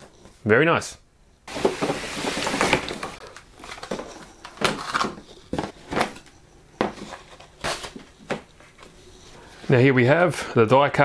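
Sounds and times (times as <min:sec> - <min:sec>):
cardboard sliding scrape: 0:01.5 - 0:03.2.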